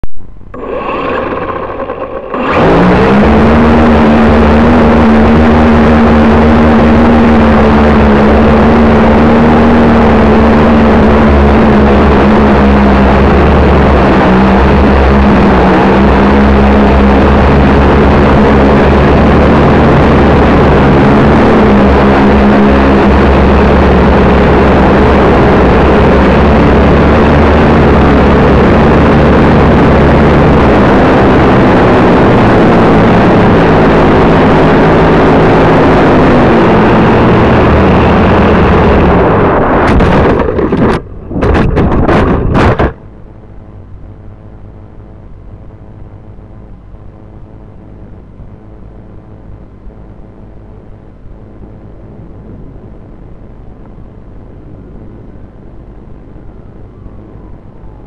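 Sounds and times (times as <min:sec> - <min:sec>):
quadcopter motors buzzing: 0:00.5 - 0:39.8
rushing propeller wash: 0:00.6 - 0:30.8.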